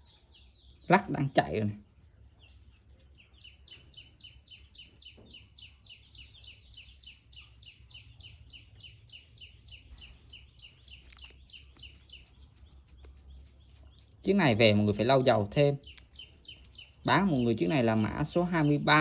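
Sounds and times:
wristwatch ticking: 15.4 - 17.0
sharp clicks: 15.8 - 17.0.

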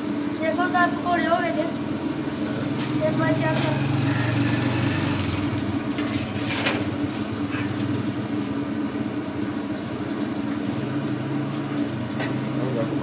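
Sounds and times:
food sizzling in hot oil: 1.7 - 13.0
metal skimmer scraping pan: 5.9 - 8.0.

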